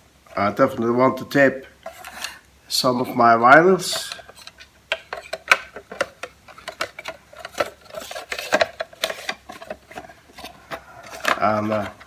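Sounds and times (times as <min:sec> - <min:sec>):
plastic tape reel clicks and rattles: 0:03.9 - 0:10.1.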